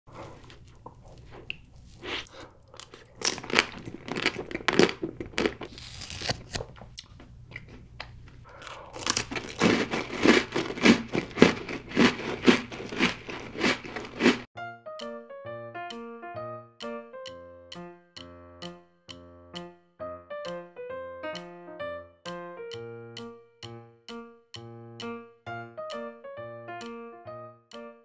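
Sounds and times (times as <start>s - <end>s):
chewing cake: 0.1s - 14.5s
crunching cookie: 0.2s - 14.5s.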